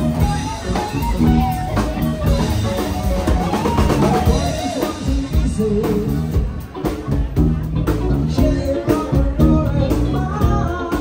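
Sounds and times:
drum kit beating: 0.0s - 11.0s
electric guitar: 0.0s - 11.0s
person singing: 2.7s - 6.6s, 7.9s - 11.0s.

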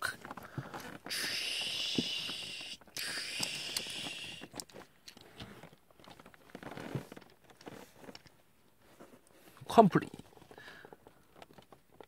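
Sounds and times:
plastic toy parts clicking: 2.6s - 5.2s.

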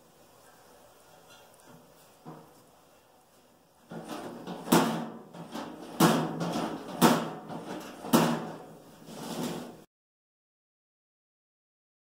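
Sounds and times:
sheet metal feeder clanking: 3.9s - 9.8s.

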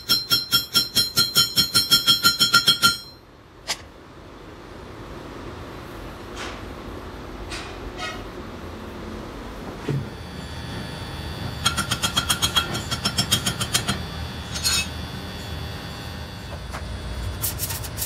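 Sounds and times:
hammer striking steel tube: 0.0s - 3.2s, 11.6s - 14.9s
low workshop hum: 0.0s - 18.0s.

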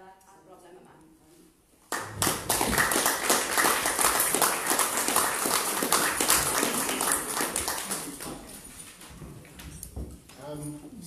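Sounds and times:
audience applauding: 1.9s - 8.6s.

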